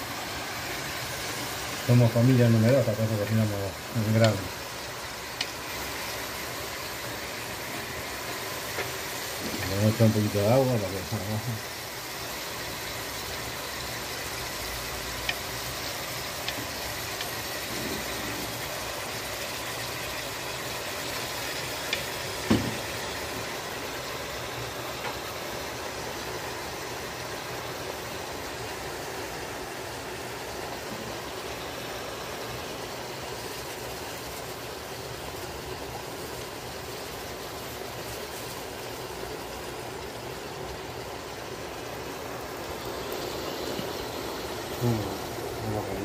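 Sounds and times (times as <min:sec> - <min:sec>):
stew pot hissing on stove: 0:00.0 - 0:46.0
sharp knock: 0:22.5 - 0:22.8.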